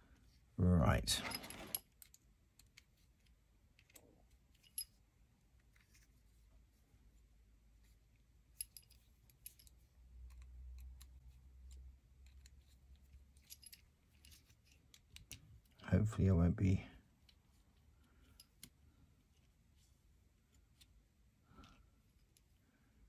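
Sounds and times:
small parts clicking: 1.5s - 4.9s, 8.6s - 15.8s.

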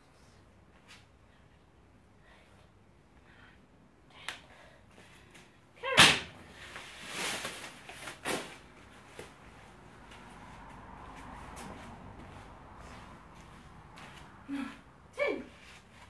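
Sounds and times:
rustling swish: 6.5s - 14.5s.

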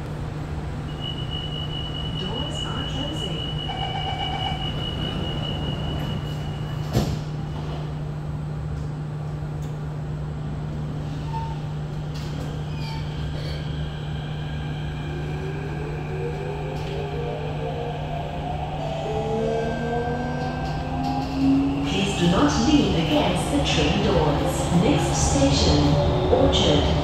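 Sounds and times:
train equipment hum: 0.0s - 27.0s.

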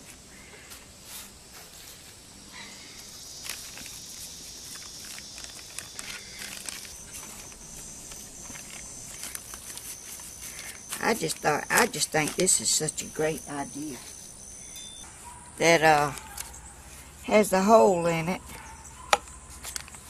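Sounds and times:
high-pitched insect drone: 2.5s - 15.1s
plastic bag crinkling: 3.3s - 13.2s.

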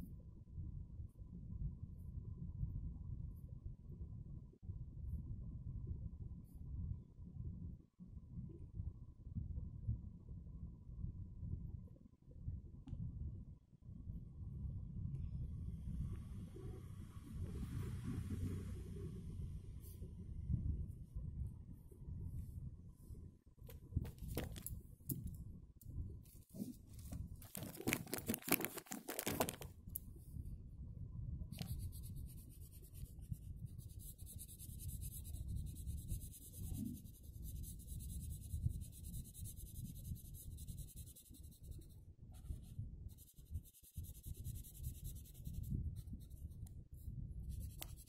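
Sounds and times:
paper rustling: 26.6s - 29.7s
marker scratching on paper: 31.6s - 46.6s, 47.5s - 48.0s.

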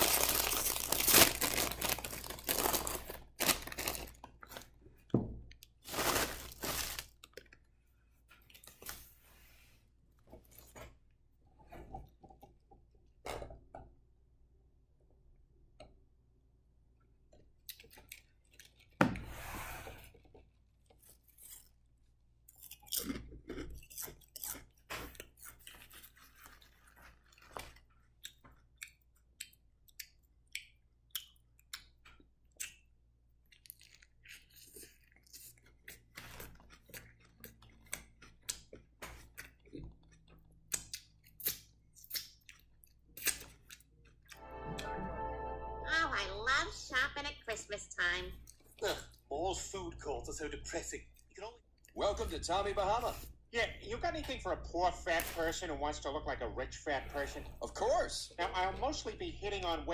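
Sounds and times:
plastic bag crinkling: 0.0s - 4.6s, 5.8s - 7.3s
chewing crisp crunches: 17.6s - 19.0s, 20.2s - 44.4s.

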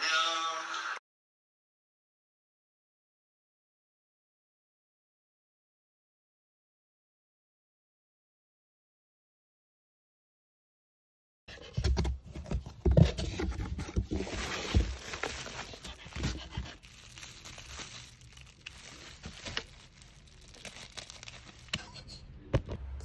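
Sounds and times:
crinkling rustling handling noise: 11.9s - 22.2s.

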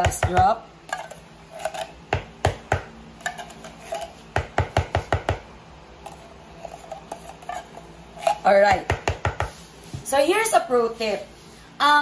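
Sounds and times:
metal spoon scraping a tin can: 0.9s - 2.0s, 3.2s - 4.2s, 6.1s - 8.6s.

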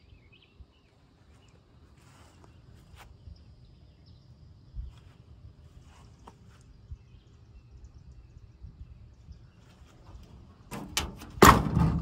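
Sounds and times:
loud clunk in truck cab: 10.7s - 12.0s.

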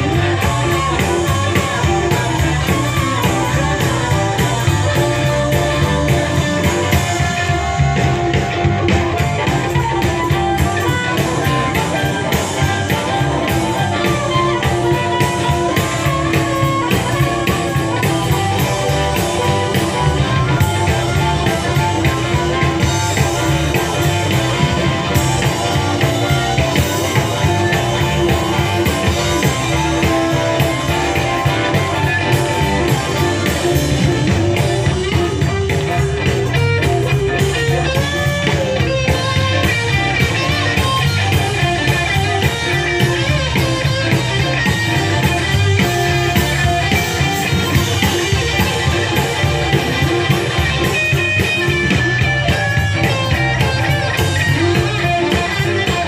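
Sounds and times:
amplified harmonica: 0.0s - 56.0s
drum kit: 0.0s - 56.0s
electric guitars: 0.0s - 56.0s.

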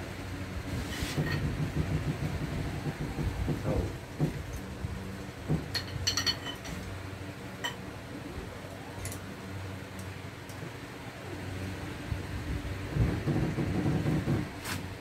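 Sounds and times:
steady low hum: 0.0s - 15.0s
hand tools clinking on metal: 5.7s - 6.8s.

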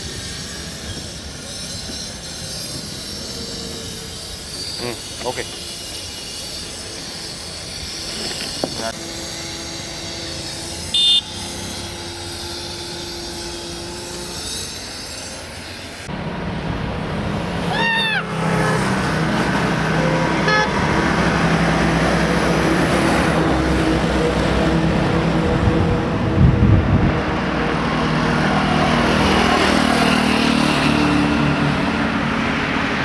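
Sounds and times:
city road traffic: 0.0s - 33.0s
steady outdoor hiss: 0.0s - 33.0s
vehicle horn honking: 10.8s - 12.3s, 19.9s - 21.0s.

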